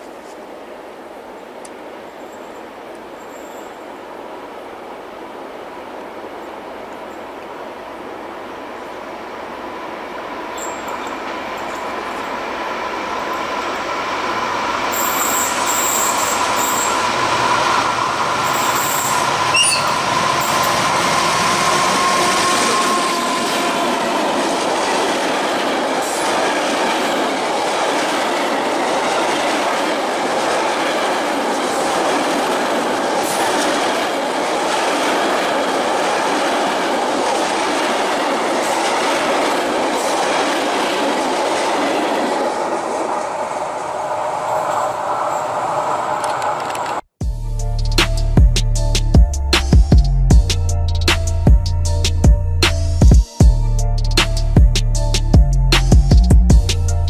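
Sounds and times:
diesel locomotive passing: 0.0 - 57.0
freight wagons rumbling on rails: 6.4 - 47.0.

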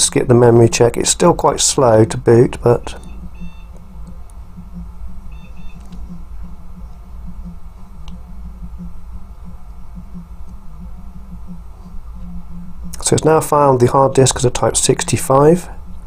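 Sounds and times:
computer humming: 0.0 - 16.0
short faint beeps: 3.0 - 3.8, 4.6 - 5.9.

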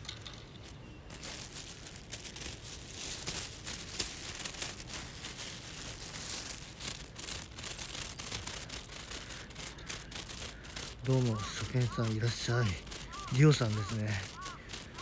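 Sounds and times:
jacket rubbing on microphone: 3.8 - 15.0.

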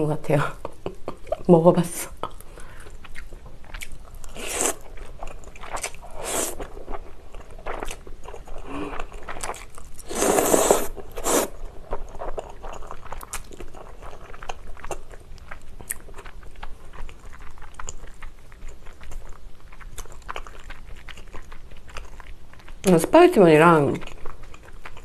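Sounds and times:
close chewing with mouth clicks: 2.1 - 25.0
noodles slurped loudly: 10.0 - 11.6.

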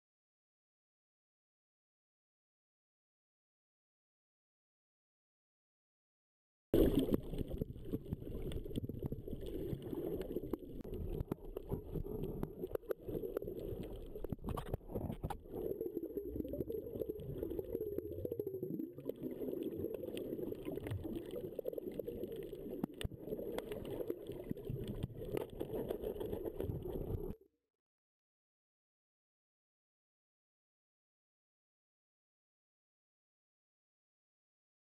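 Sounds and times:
underwater rushing water: 6.8 - 27.4.

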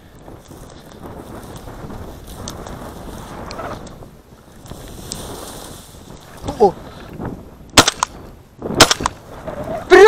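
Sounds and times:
dry grass rustling: 0.0 - 10.0
loud shotgun shot: 7.8 - 8.2, 8.8 - 9.2.

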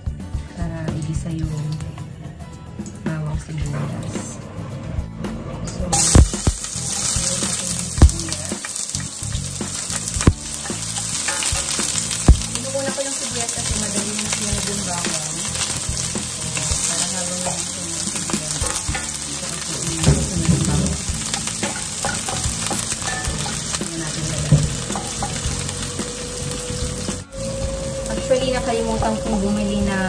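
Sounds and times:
onions sizzling in oil: 6.0 - 30.0.

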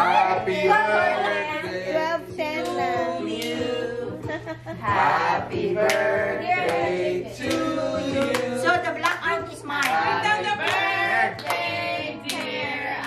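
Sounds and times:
people singing together: 0.0 - 13.0
hand claps: 5.8 - 10.0, 10.6 - 12.6.

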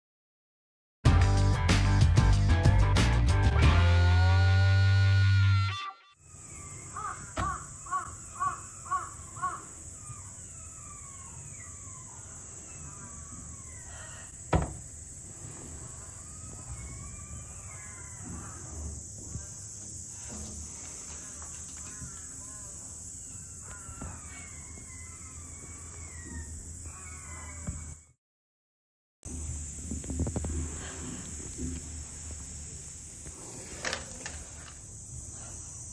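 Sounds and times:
steady high hiss: 6.2 - 24.8, 29.3 - 35.9
otters chirping: 20.9 - 27.9.

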